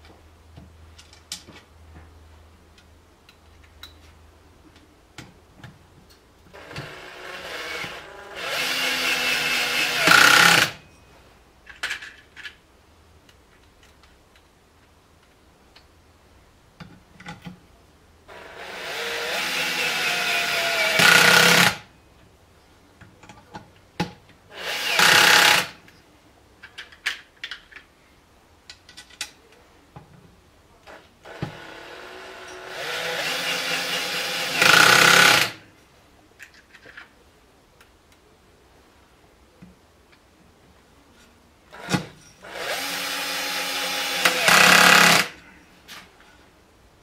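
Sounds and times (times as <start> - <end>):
cordless drill driving screws: 6.6 - 10.8, 18.3 - 21.8, 24.6 - 25.8, 31.2 - 35.6, 41.8 - 45.4
metal clicks of screws: 28.7 - 29.4.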